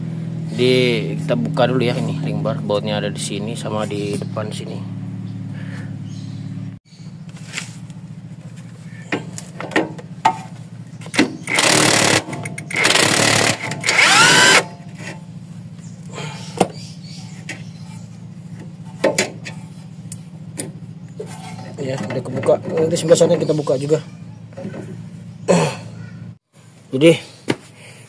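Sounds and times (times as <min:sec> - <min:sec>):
impact wrench bursts: 0:11.2 - 0:14.8.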